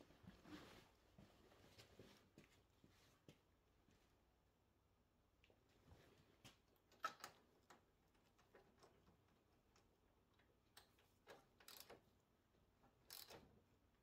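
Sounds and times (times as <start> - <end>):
hand ratchet clicking: 11.6 - 12.0, 13.1 - 13.4.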